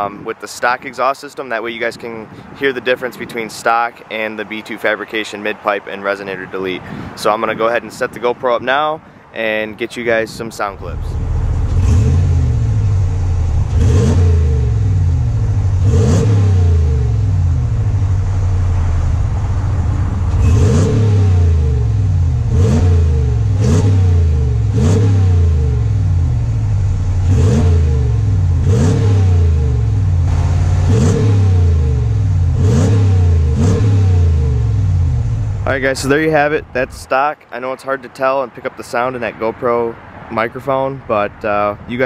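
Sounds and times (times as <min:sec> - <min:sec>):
truck engine idling and revving: 0:10.6 - 0:37.2.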